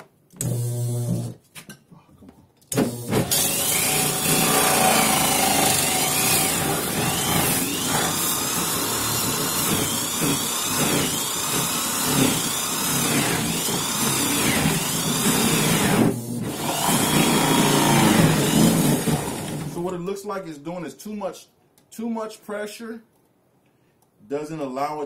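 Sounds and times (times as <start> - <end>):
drill with hole saw grinding plastic: 2.8 - 19.8.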